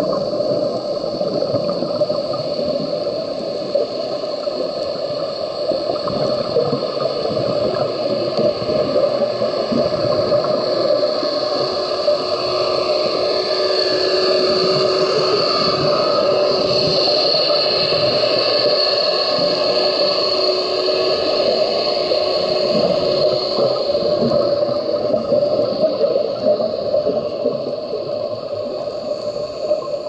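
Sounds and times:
muffled underwater hiss and hum: 0.0s - 30.0s.

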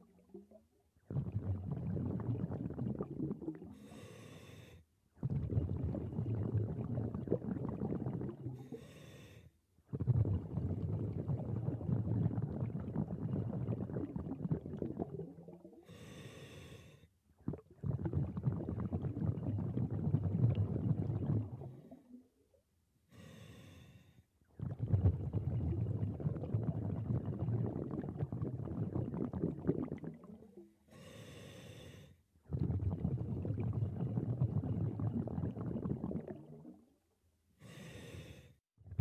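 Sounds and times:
bubbling regulator exhalations: 0.0s - 4.2s, 5.2s - 9.0s, 9.9s - 16.3s, 17.4s - 22.3s, 24.5s - 31.4s, 32.4s - 36.9s.

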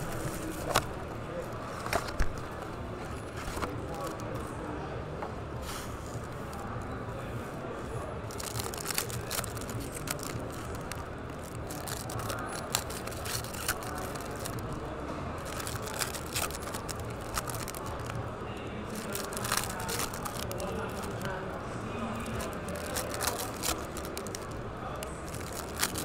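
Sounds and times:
foil wrappers crinkling: 0.0s - 2.4s, 8.2s - 14.8s, 15.4s - 26.0s
steady background din: 0.0s - 26.0s.

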